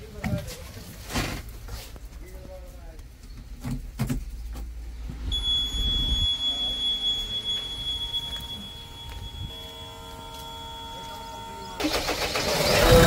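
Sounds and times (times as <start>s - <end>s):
high-pitched warning buzzer: 5.3s - 13.0s.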